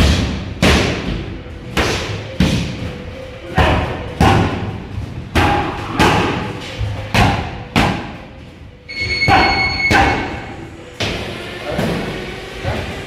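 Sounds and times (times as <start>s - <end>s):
punches hitting padded shield: 0.0s - 1.2s
high beep: 8.9s - 10.2s.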